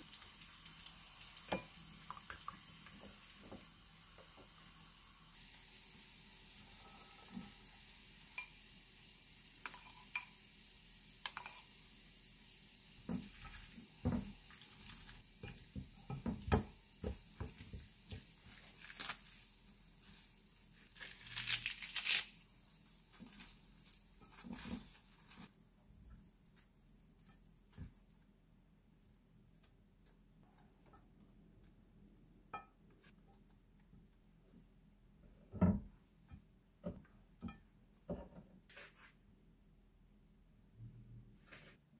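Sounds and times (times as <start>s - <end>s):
faint steady hiss: 0.0s - 41.9s
lettuce leaves rustling: 18.5s - 25.5s.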